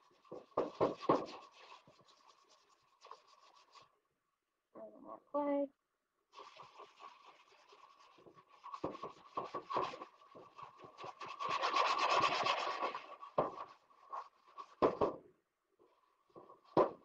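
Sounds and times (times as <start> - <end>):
sponge scrubbing metal: 0.0 - 3.9, 6.3 - 14.9.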